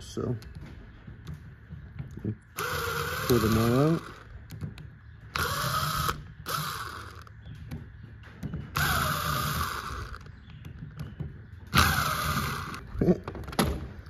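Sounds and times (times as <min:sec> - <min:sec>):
small power tool spinning bolts: 0:02.6 - 0:04.3, 0:05.3 - 0:07.3, 0:08.7 - 0:10.3, 0:11.7 - 0:12.9.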